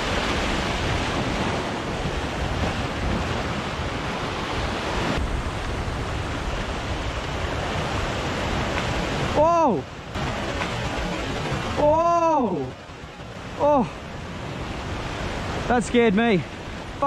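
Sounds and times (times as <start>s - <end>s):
wind noise on microphone: 0.0s - 9.4s
ocean surf washing in: 0.0s - 17.0s.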